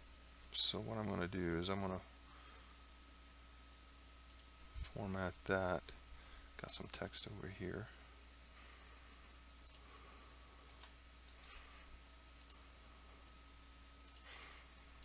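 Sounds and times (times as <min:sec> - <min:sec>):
low steady hum: 0:00.0 - 0:15.0
computer mouse clicks: 0:04.3 - 0:04.5, 0:09.6 - 0:09.8, 0:10.7 - 0:11.6, 0:12.4 - 0:12.6, 0:14.0 - 0:14.3.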